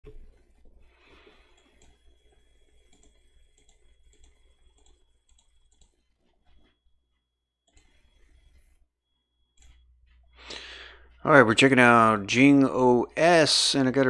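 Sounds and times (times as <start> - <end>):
computer clicks: 1.2 - 6.8, 7.6 - 8.8, 9.5 - 9.9.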